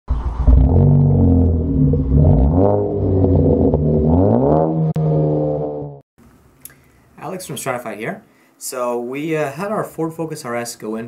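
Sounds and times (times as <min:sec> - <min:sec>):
car engine revving: 0:00.4 - 0:06.0.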